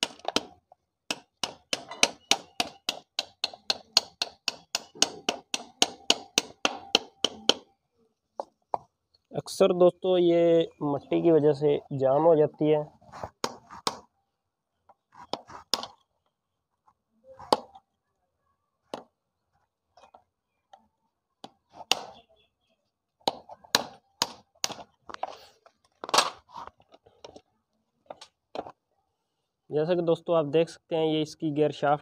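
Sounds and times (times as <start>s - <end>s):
hammer tapping on metal: 1.1s - 7.7s.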